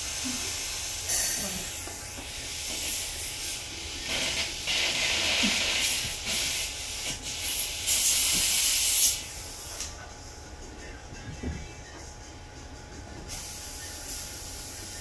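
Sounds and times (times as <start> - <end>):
dental suction hissing: 0.0 - 9.9
air-water spray hissing: 2.3 - 9.9.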